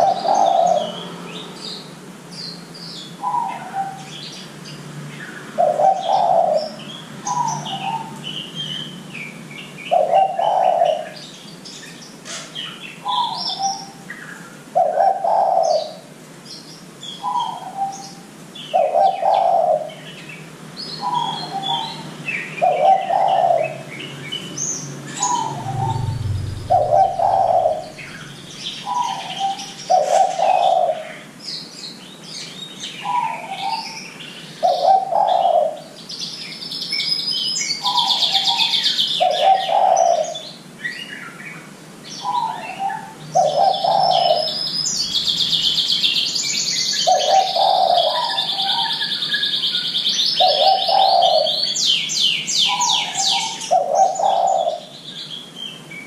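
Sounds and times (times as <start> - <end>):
dove cooing: 0.0 - 1.0, 5.6 - 8.2, 9.9 - 11.2, 14.7 - 16.1, 18.8 - 20.0, 22.6 - 23.8, 25.2 - 31.2, 34.6 - 35.9, 37.8 - 40.4, 42.3 - 44.6, 47.0 - 49.0, 50.4 - 51.7, 52.7 - 54.9
small songbirds chirping: 0.0 - 56.0.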